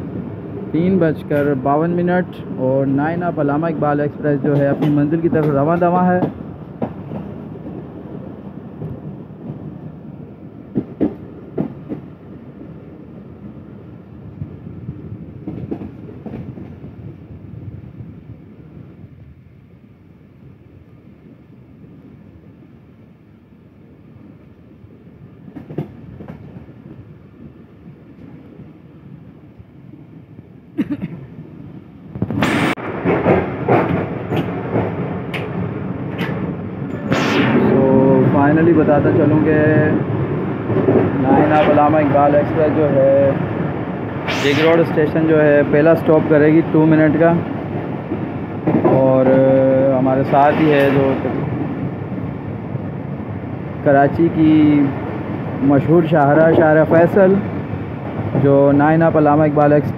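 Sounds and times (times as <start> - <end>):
train rumbling on track: 0.0 - 59.9
loud wheel and track noise: 32.1 - 59.9.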